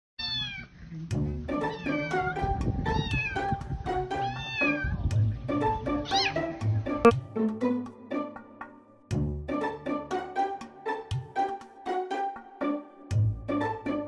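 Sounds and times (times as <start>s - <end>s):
kitten meowing: 0.2s - 0.7s, 1.7s - 3.5s, 4.2s - 5.0s, 6.1s - 6.4s
background music: 1.1s - 14.0s.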